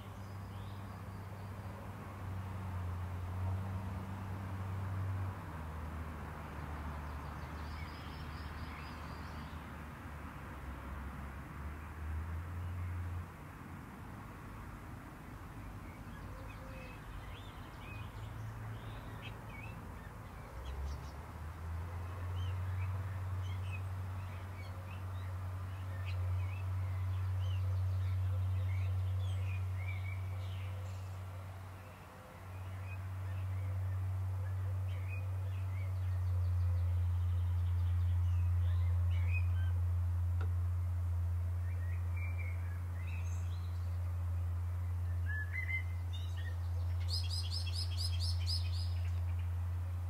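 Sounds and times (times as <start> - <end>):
birds chirping and calling: 45.3 - 49.4.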